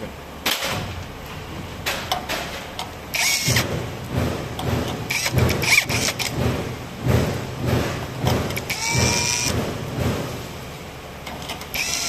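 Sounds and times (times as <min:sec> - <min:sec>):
tool scraping metal: 0:03.1 - 0:06.6, 0:07.2 - 0:10.4.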